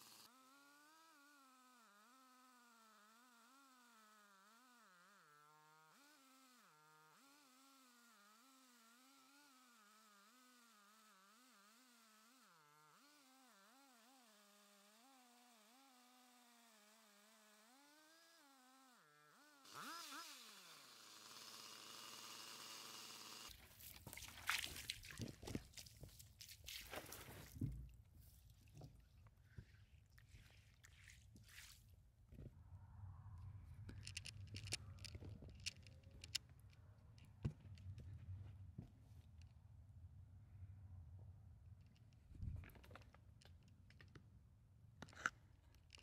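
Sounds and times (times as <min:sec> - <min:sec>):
chainsaw cutting log: 0:00.0 - 0:26.1.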